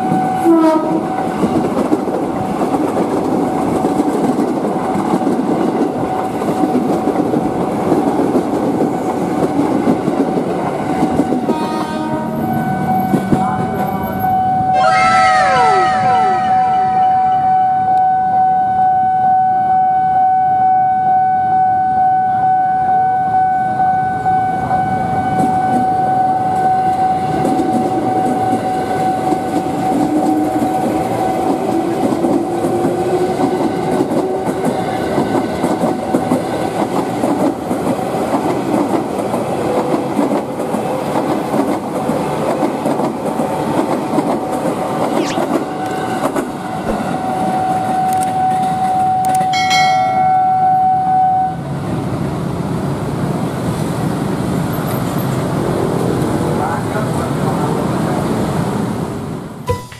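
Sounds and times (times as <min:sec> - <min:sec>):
high crossing warning tone: 0:00.0 - 0:01.6, 0:10.9 - 0:31.6, 0:45.2 - 0:51.7
train wheels clacking on rails: 0:00.0 - 0:14.1, 0:26.5 - 0:50.3.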